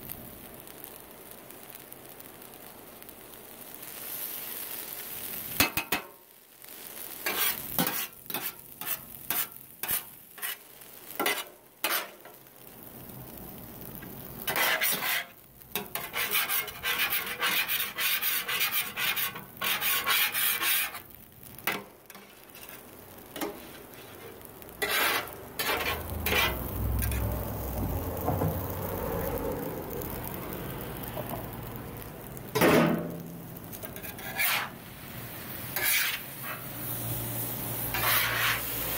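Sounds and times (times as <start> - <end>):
fried rice sizzling: 0.0 - 38.9
spatula clatter: 7.2 - 10.6, 11.2 - 12.4, 14.5 - 21.0, 21.6 - 27.2, 33.7 - 34.8, 35.7 - 36.7, 37.9 - 38.8
metal spatula scraping griddle: 7.2 - 12.4, 14.4 - 28.6, 32.6 - 38.9.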